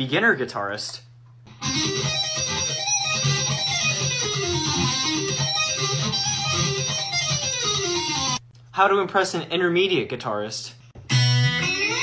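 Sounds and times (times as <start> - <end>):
fast guitar riff: 1.5 - 8.4, 11.1 - 12.0.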